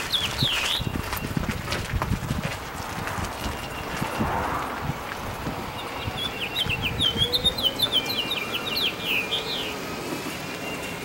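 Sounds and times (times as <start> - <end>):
songbird chirping: 3.2 - 11.0.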